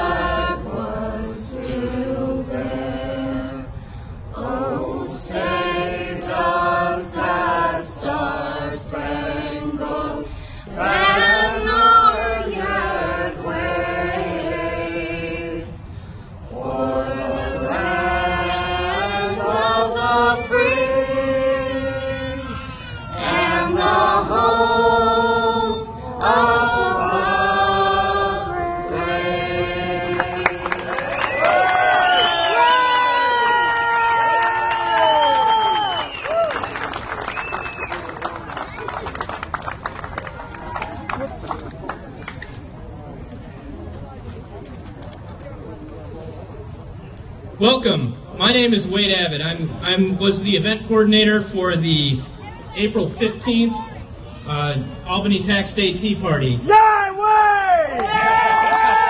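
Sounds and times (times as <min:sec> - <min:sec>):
woman singing through loudspeaker: 0:23.2 - 0:30.8.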